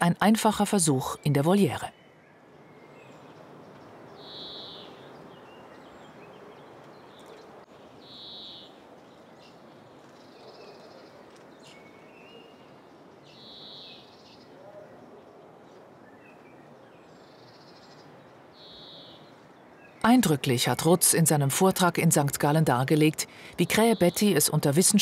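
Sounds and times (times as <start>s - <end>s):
high-pitched bird calls: 4.2s - 5.0s.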